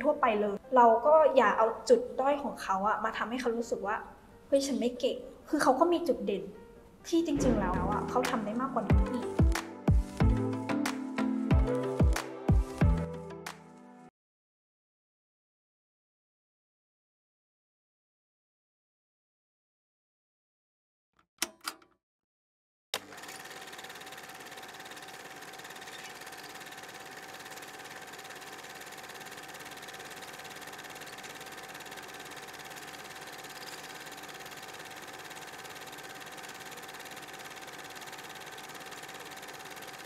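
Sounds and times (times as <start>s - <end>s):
held mid-pitched tone: 7.4s - 8.5s.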